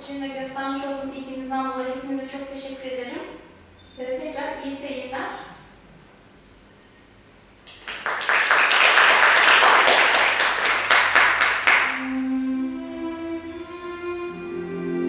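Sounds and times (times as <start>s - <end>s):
audience applauding: 7.7s - 12.0s
music with long held notes: 11.8s - 15.0s.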